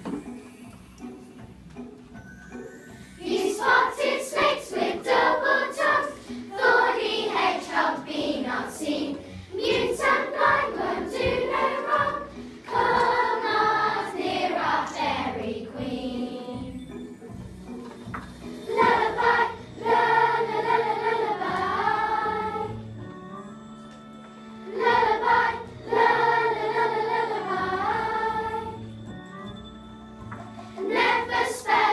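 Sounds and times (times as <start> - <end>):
children singing together: 3.2 - 16.8, 18.7 - 22.9, 24.7 - 28.9, 30.8 - 31.9.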